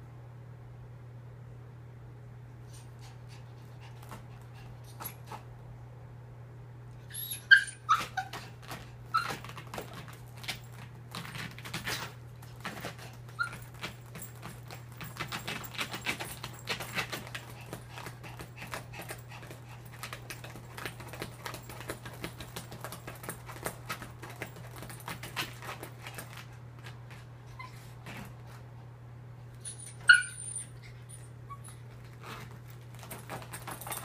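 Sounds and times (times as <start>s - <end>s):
small dog whining: 7.0s - 10.0s, 13.3s - 13.9s, 27.4s - 28.3s, 29.6s - 32.4s.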